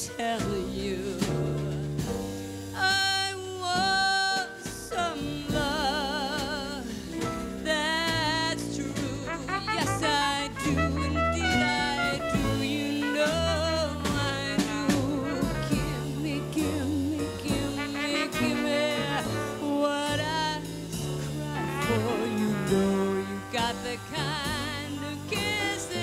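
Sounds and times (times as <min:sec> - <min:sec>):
woman singing with vibrato: 0:00.0 - 0:01.9, 0:02.8 - 0:26.0
plucked upright bass: 0:00.0 - 0:26.0
brass horn: 0:08.8 - 0:26.0.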